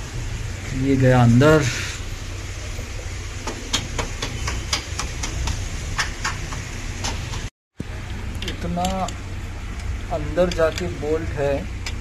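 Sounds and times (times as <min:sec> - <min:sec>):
metallic clicks of tools and parts: 0:08.1 - 0:11.0.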